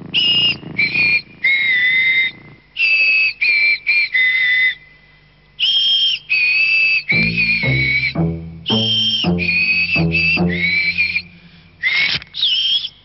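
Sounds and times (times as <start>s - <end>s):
person whistling a tune: 5.6s - 13.0s.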